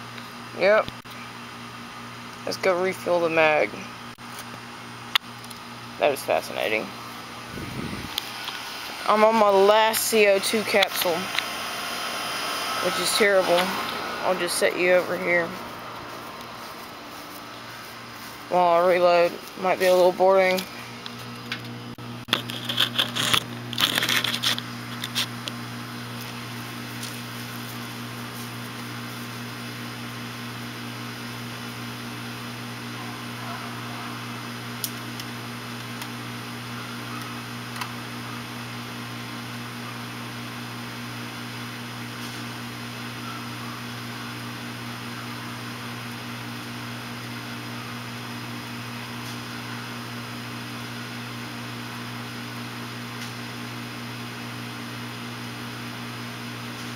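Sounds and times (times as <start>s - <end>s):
air conditioner unit humming: 0.0s - 56.9s.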